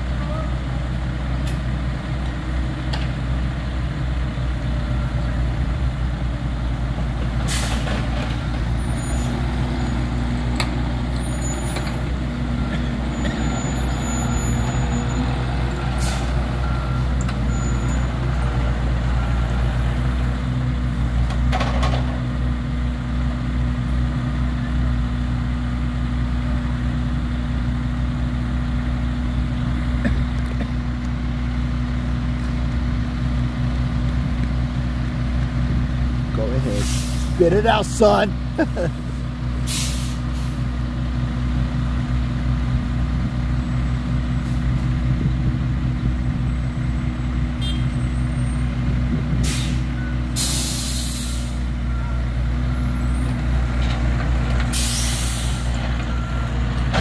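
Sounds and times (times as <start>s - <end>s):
diesel machinery running: 0.0s - 57.0s.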